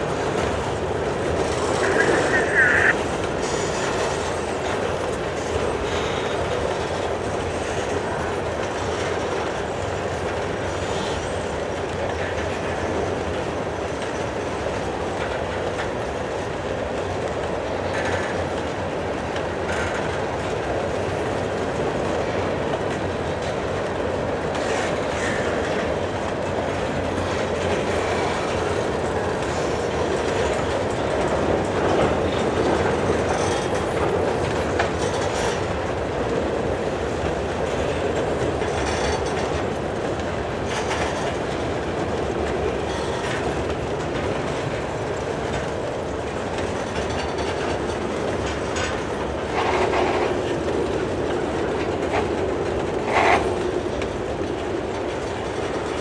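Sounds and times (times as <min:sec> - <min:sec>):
freight train rolling past: 0:00.0 - 0:56.0
wheels squealing: 0:01.4 - 0:04.6.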